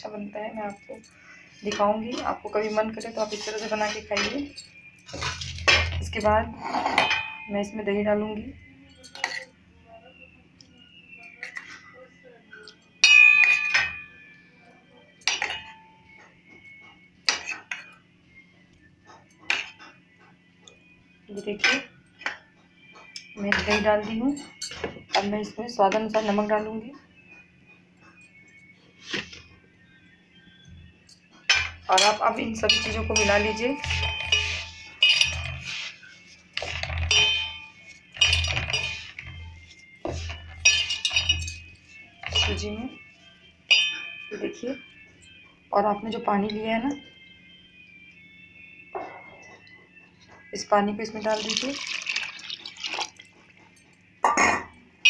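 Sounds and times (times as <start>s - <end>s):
utensil clinking on steel bowl: 0.6s - 7.8s, 8.9s - 9.6s, 12.6s - 14.4s, 15.2s - 16.1s, 23.1s - 25.3s, 31.1s - 43.0s, 43.7s - 44.6s, 51.3s - 54.8s.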